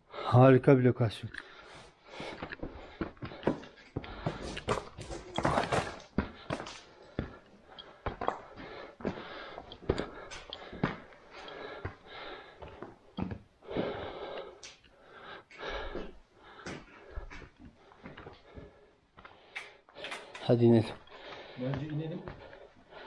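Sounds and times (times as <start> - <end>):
person breathing heavily: 1.4 - 23.0
footsteps on loose rock: 2.5 - 7.4.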